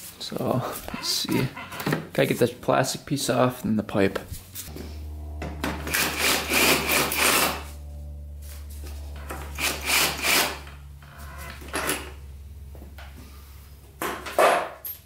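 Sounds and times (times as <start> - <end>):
steady low hum: 2.6 - 15.0
cordless drill whirring: 9.5 - 12.1.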